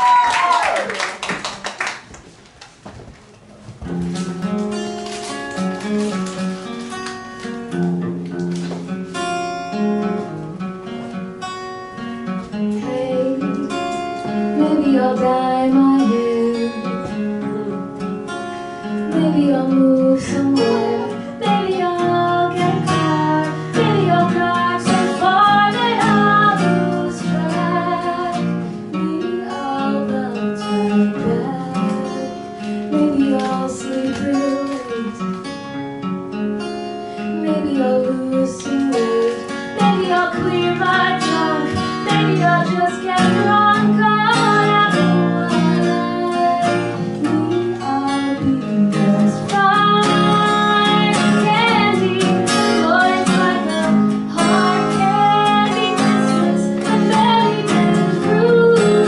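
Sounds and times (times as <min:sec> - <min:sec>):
acoustic guitar playing: 0:03.2 - 0:59.0
person singing: 0:12.7 - 0:18.0, 0:19.1 - 0:35.4, 0:37.3 - 0:59.0.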